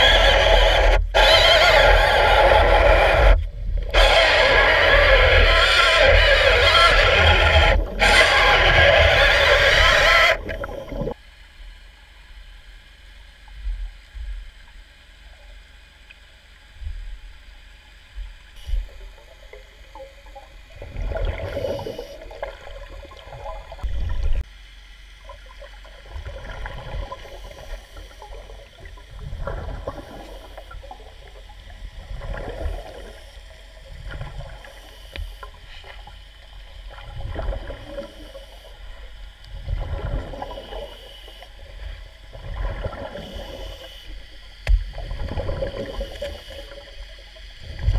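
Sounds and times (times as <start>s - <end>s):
loud noisy sound: 0.0s - 10.4s
underwater bubbles gurgling: 0.0s - 11.2s, 13.4s - 47.9s.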